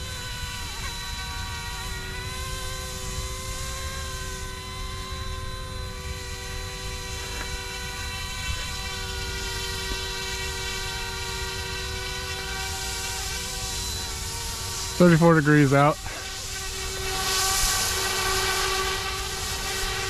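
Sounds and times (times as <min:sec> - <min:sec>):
rc helicopter motor whine: 0:00.0 - 0:20.0.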